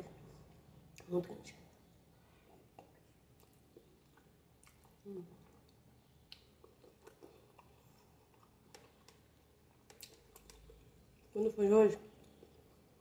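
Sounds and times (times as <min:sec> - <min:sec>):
mouth clicks from chewing: 0:09.8 - 0:10.9.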